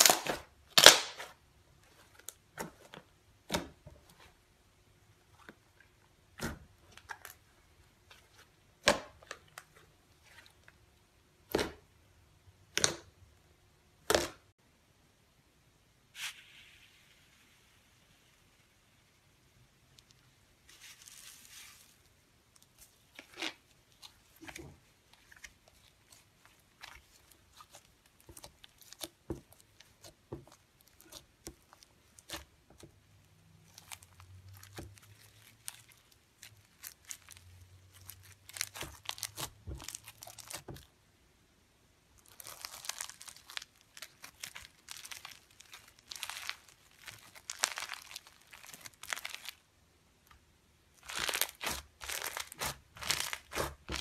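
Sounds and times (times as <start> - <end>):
slime crackling and popping: 0.0 - 1.4, 22.5 - 40.9, 42.1 - 49.6, 50.9 - 54.0.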